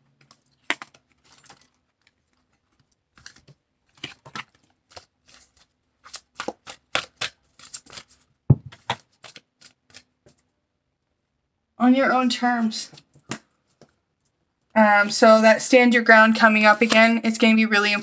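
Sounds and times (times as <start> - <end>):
cards clicking and rustling: 0.1 - 10.5.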